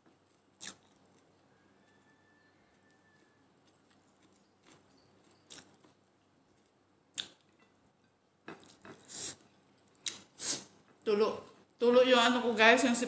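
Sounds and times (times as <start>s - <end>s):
quiet chewing: 0.0s - 11.0s
breathy nose sniffs: 9.0s - 9.4s, 10.4s - 10.7s.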